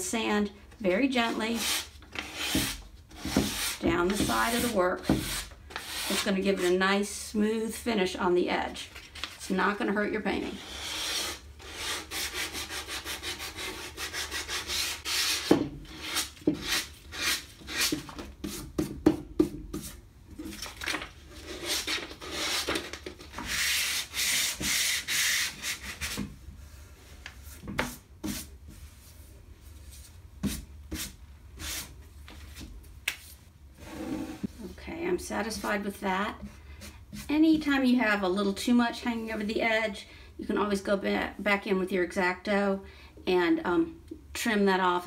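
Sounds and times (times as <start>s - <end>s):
sandpaper rubbing paper edge: 10.6s - 17.9s.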